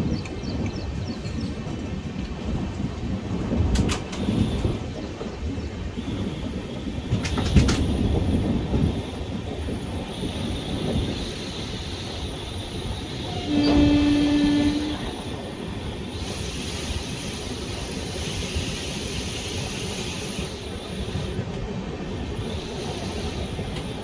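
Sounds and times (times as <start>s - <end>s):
train running on rails: 0.0s - 24.0s
train horn: 13.2s - 15.3s.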